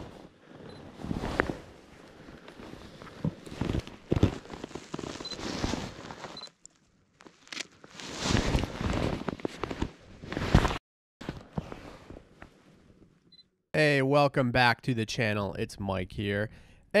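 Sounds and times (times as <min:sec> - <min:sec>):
jacket fabric rustling: 0:00.0 - 0:13.0.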